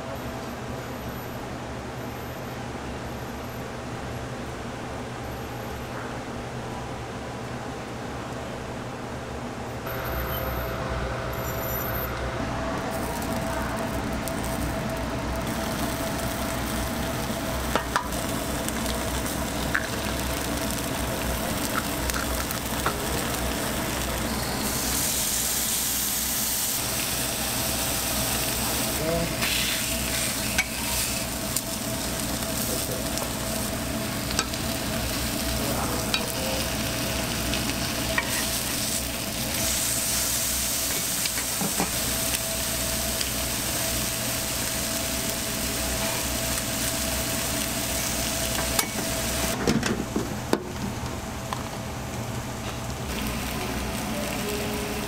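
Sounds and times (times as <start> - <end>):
food sizzling on a griddle: 12.8 - 49.6, 53.0 - 55.0.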